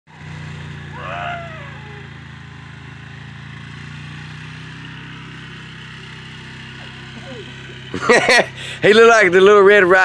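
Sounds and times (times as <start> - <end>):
small petrol engine running: 0.1 - 10.0
person shouting: 0.9 - 2.2, 7.2 - 7.6.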